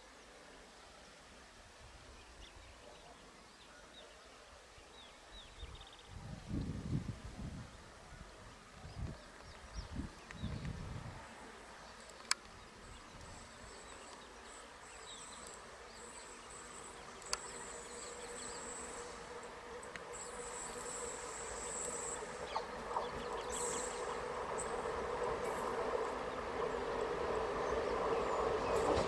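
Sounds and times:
approaching train hum: 6.3 - 29.0
insects buzzing: 11.2 - 29.0.

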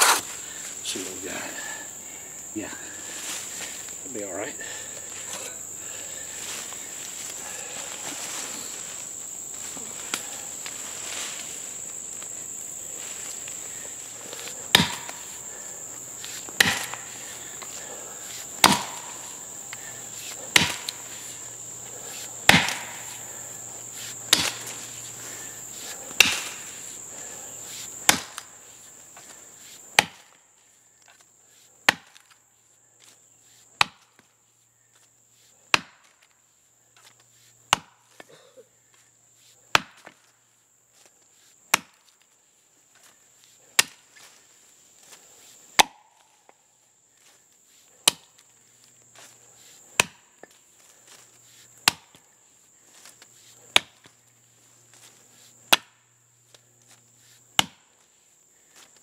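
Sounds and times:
axe chopping into tree: 14.7 - 15.3, 16.3 - 17.1, 18.6 - 19.3, 20.3 - 21.0, 22.4 - 23.2, 24.3 - 24.8, 26.1 - 26.7, 28.0 - 28.5, 29.9 - 30.3, 31.9 - 32.4, 33.8 - 34.2, 35.7 - 36.2, 37.7 - 38.0, 39.7 - 40.2, 41.7 - 42.0, 43.8 - 44.0, 45.8 - 46.2, 48.0 - 48.3, 50.0 - 50.3, 51.8 - 52.2, 53.7 - 54.1, 55.7 - 56.0, 57.6 - 57.9.

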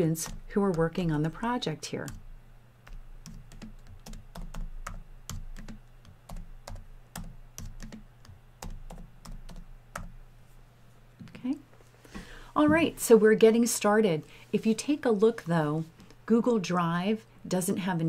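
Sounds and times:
typing on computer keyboard: 0.1 - 1.1, 2.8 - 10.2.

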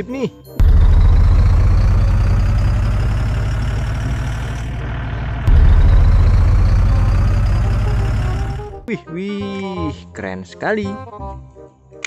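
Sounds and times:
engines rumbling: 0.6 - 8.9.

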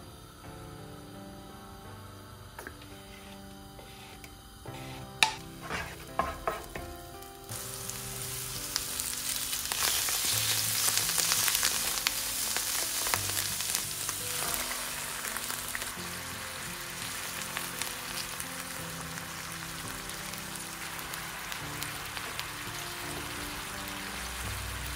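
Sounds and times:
mushrooms sizzling in a frying pan: 2.5 - 24.9
wooden spoon scraping a pan: 2.9 - 6.9.

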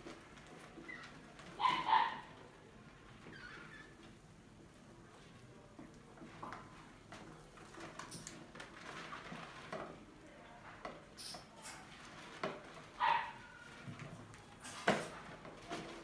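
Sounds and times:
mice scrabbling in plastic jar: 0.0 - 4.2, 4.9 - 16.0.

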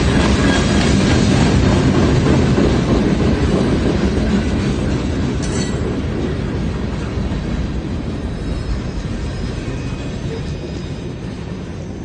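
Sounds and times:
freight train wheels rumbling: 0.0 - 12.0
high metallic squeal: 8.2 - 12.0.

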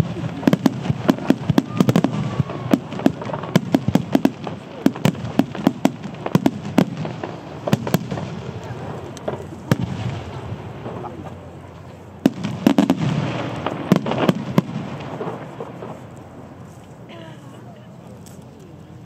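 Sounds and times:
fireworks bursting: 0.0 - 18.8.

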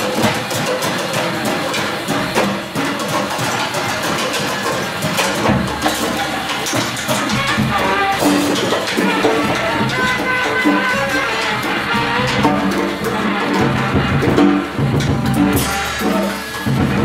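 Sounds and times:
dense noisy wash of sound: 0.0 - 17.0
drum kit hits: 0.0 - 17.0
saxophone playing: 7.2 - 17.0.

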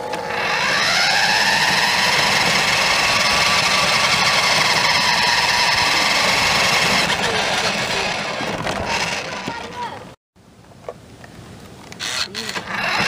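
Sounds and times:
toy truck motor whining: 0.0 - 10.0, 12.0 - 13.0
tyres rolling over asphalt: 0.0 - 10.2.

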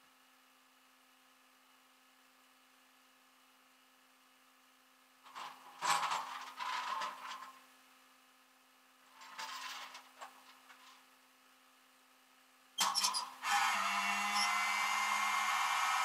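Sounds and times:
faint steady hum: 0.0 - 16.0
metal hardware rattling and scraping: 5.3 - 7.6, 9.1 - 11.0.

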